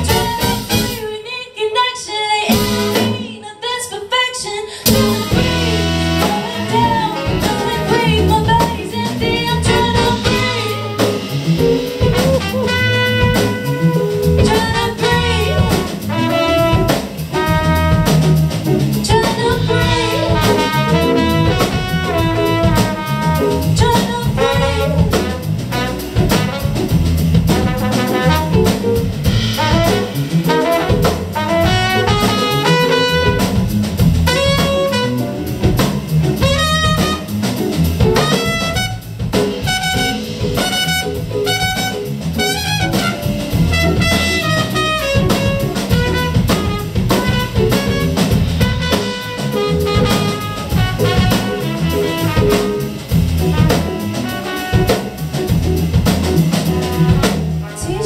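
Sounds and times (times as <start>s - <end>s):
drum kit: 0.0s - 1.3s, 2.4s - 3.4s, 4.7s - 58.0s
saxophone: 0.0s - 1.3s, 4.8s - 35.8s, 36.4s - 55.9s, 56.6s - 58.0s
trumpet: 0.0s - 1.3s, 4.9s - 8.1s, 9.6s - 18.8s, 19.7s - 35.7s, 36.4s - 37.4s, 38.0s - 55.6s, 56.6s - 58.0s
electric guitar: 4.8s - 58.0s.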